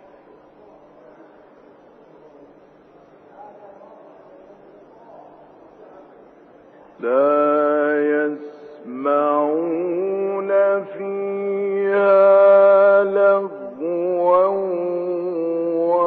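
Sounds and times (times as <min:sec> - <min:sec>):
man chanting melodically: 0:07.0 - 0:16.0.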